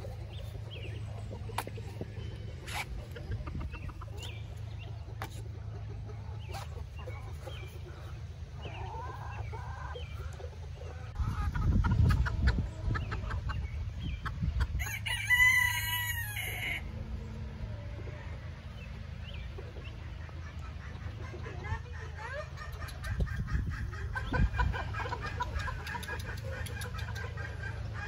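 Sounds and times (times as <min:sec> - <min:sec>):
chickens clucking quietly: 0:00.0 - 0:28.0
rooster crowing: 0:14.8 - 0:16.9.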